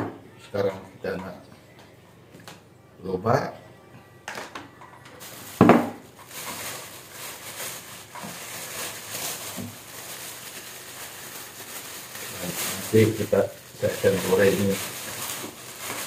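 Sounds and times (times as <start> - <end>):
plastic bag rustling: 5.2 - 16.0.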